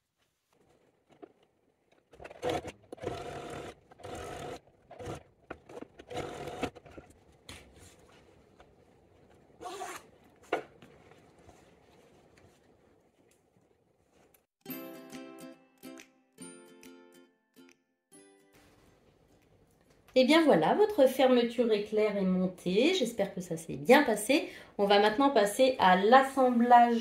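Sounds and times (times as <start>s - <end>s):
sewing machine stitching: 2.0s - 7.1s.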